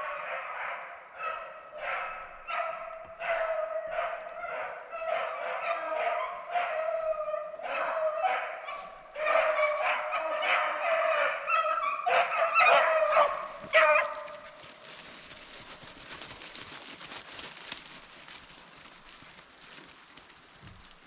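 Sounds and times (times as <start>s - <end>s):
dogs baying and barking: 0.0s - 16.7s
faint rustling: 13.4s - 21.0s.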